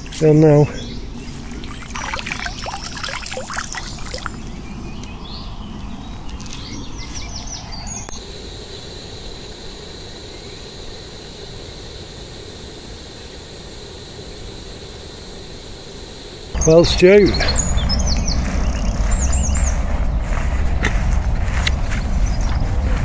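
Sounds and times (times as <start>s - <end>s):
outdoor background hiss: 0.0s - 23.0s
pond water splashing: 1.3s - 4.6s
water dripping: 1.5s - 4.5s.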